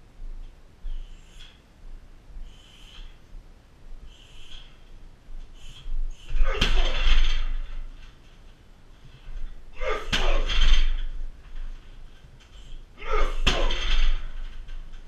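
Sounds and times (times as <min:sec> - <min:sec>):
kicks smacking heavy bag: 0:06.4 - 0:07.9, 0:09.8 - 0:11.0, 0:13.0 - 0:14.4.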